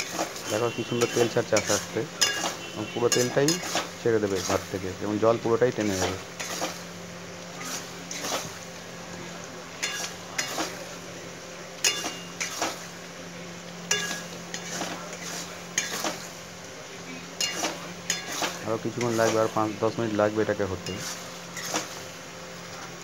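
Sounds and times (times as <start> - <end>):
metal spatula scraping wok: 0.0 - 4.8, 5.8 - 6.9, 7.6 - 8.6, 9.8 - 10.8, 11.8 - 12.9, 13.9 - 16.3, 17.4 - 19.6, 20.8 - 22.0.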